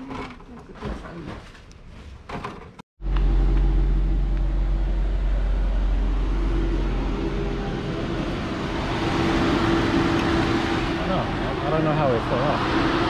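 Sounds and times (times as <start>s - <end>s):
car engine idling: 3.0s - 13.0s.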